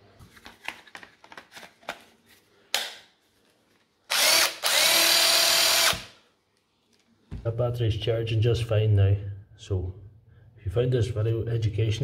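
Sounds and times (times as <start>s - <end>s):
cordless driver running: 4.1s - 6.1s.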